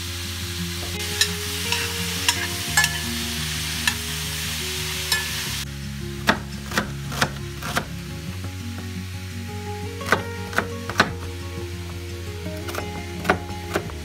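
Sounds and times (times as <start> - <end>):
food sizzling in frying pan: 0.0 - 5.7.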